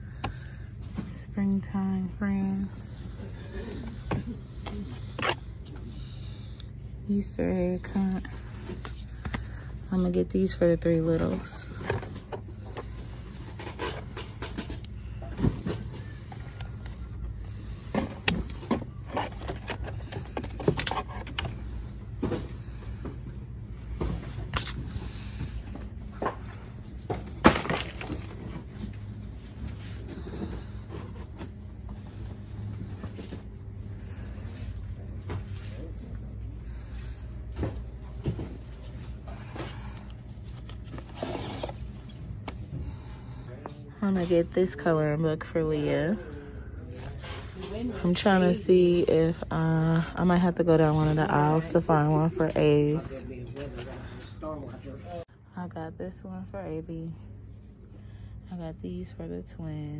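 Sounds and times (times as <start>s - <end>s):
low background hum: 0.0s - 59.9s
books and packaging handled: 7.2s - 43.7s.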